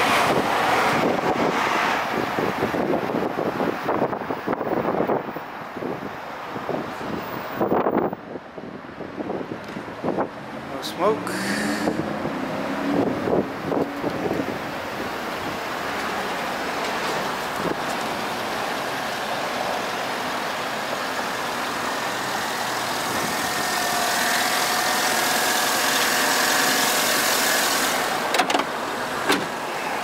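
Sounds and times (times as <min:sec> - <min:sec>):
car engine idling: 0:10.0 - 0:29.8.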